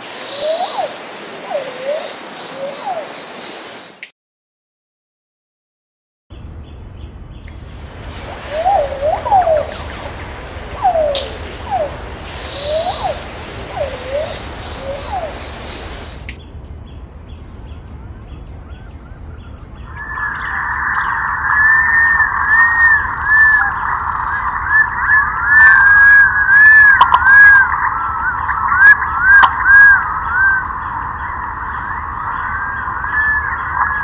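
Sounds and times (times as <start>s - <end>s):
pigeons calling: 0.1s - 3.8s, 7.6s - 16.3s
whistled bird notes: 0.2s - 3.8s, 7.8s - 16.3s, 18.7s - 34.0s
sharp bird clicks: 11.0s - 13.2s.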